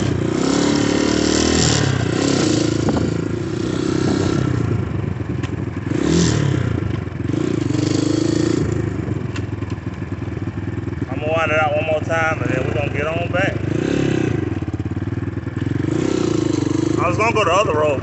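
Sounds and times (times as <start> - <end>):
dirt bike engine revving: 0.0 - 18.0
wind rushing over microphone: 1.8 - 6.0.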